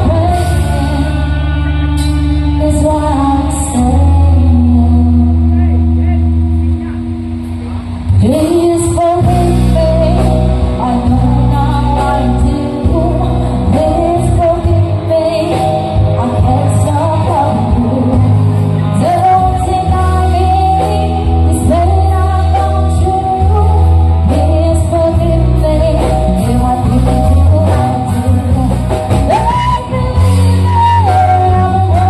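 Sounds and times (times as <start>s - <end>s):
woman singing: 0.0s - 6.0s, 8.1s - 32.0s
bass guitar: 0.0s - 32.0s
drum kit: 0.0s - 32.0s
electric guitar: 0.0s - 32.0s.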